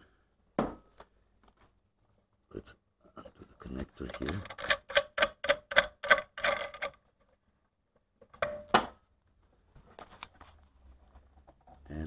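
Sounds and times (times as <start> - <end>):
metallic clicks of plug unscrewing: 4.0 - 7.0.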